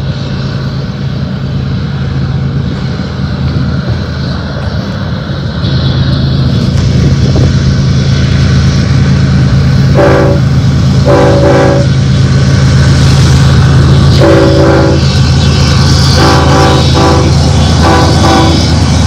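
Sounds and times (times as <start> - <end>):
diesel locomotives rumbling: 0.0 - 19.0
locomotive air horn: 9.9 - 12.0, 14.1 - 19.0.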